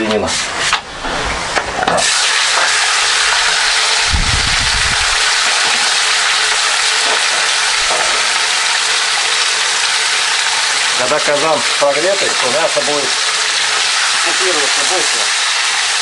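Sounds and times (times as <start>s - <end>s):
meat sizzling in hot oil: 2.0s - 16.0s
low rumble: 4.0s - 5.2s.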